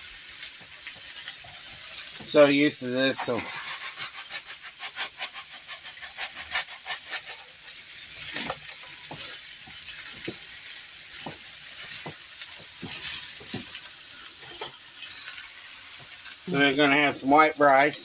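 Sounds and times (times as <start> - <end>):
sausage sizzling in a wok: 0.0 - 18.0
dry rice rattling into a pot: 1.1 - 10.5.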